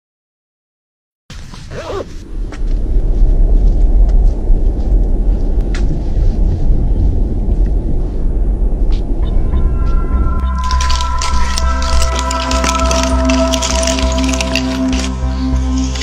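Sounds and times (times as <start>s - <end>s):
wind buffeting microphone: 1.8s - 12.4s.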